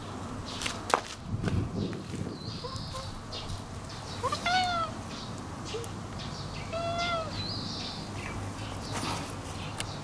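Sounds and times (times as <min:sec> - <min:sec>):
cat meowing: 0:04.2 - 0:05.0, 0:06.7 - 0:07.4.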